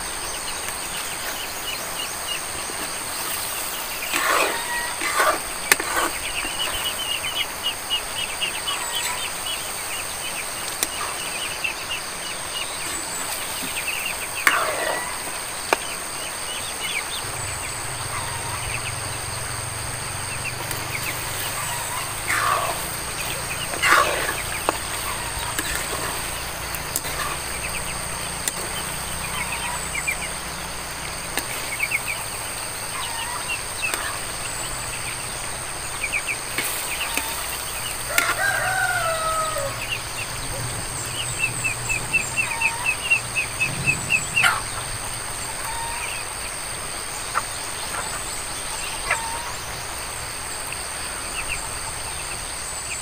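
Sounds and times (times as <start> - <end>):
high-pitched whine: 0.0 - 47.4
chickens clucking: 0.0 - 53.0
rooster crowing: 4.1 - 6.1, 14.4 - 15.4, 17.2 - 27.5, 37.0 - 40.6, 41.5 - 46.4.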